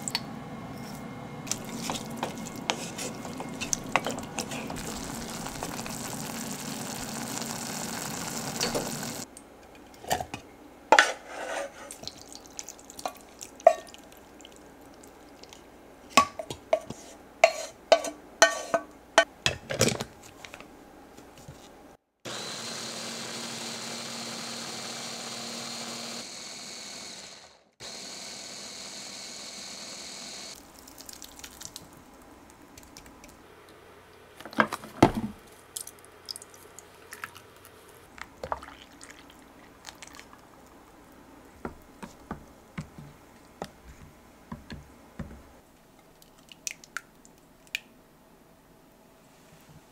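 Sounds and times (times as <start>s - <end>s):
simmering pan hissing: 1.5s - 9.3s
hand blender motor whine: 4.4s - 9.3s, 22.3s - 30.6s
milk pouring splash: 4.8s - 9.3s, 30.6s - 32.2s, 38.4s - 40.4s.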